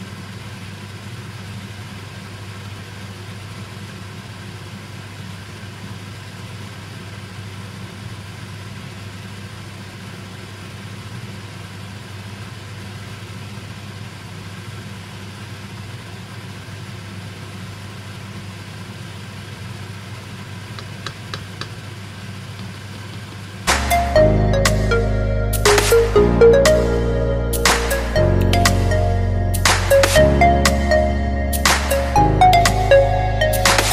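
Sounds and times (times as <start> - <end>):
low machine hum: 20.7 - 33.9.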